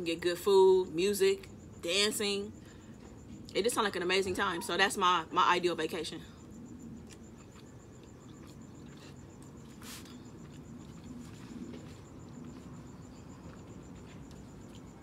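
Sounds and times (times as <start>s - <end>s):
faint high-pitched electrical whine: 0.0s - 15.0s
close chewing with mouth smacks: 7.0s - 15.0s.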